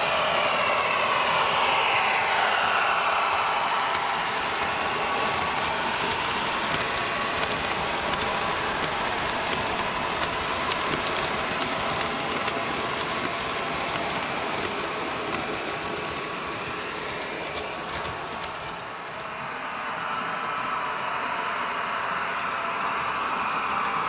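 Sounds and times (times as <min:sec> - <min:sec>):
model train rattling: 0:00.0 - 0:19.6
wheels clicking over rail joints: 0:00.1 - 0:19.0.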